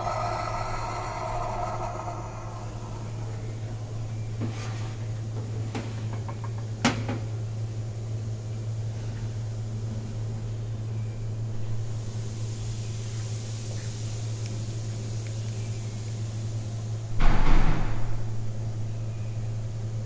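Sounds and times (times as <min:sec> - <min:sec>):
low hum: 0:00.0 - 0:04.5.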